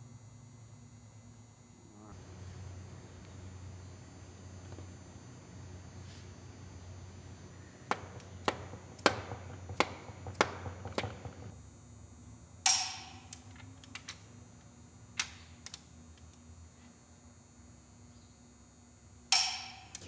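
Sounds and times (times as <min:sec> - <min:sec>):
mallet tapping metal: 0:19.3 - 0:20.0.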